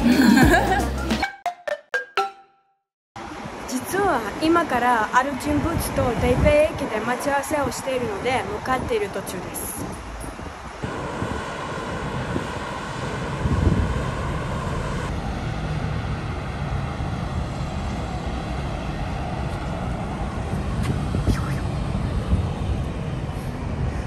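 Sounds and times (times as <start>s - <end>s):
road and traffic rumble: 3.2s - 24.0s
wind buffeting microphone: 3.3s - 24.0s.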